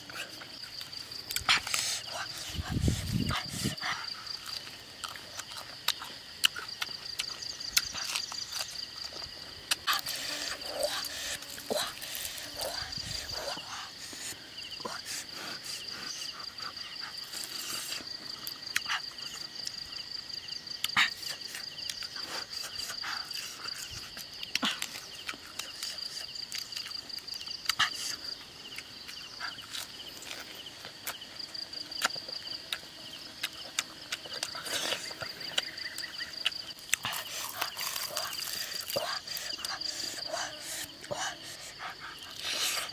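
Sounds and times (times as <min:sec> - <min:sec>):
insects trilling: 0:00.0 - 0:42.9.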